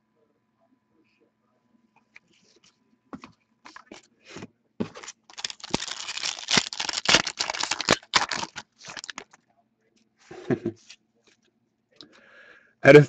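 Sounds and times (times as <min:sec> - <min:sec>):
packaging rustling: 0:04.8 - 0:09.4
wrapper crinkling and tearing: 0:04.9 - 0:09.4.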